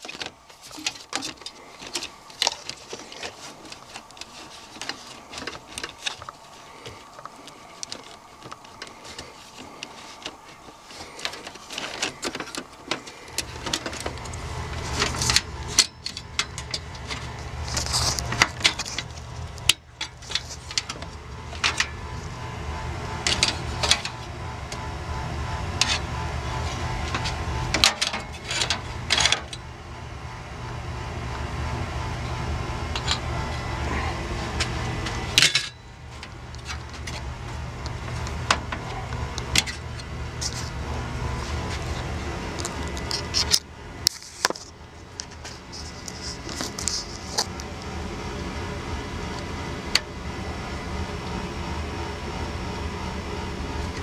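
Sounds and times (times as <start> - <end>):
hands rattling inside computer case: 0.0 - 22.0
steady low hum: 0.0 - 54.0.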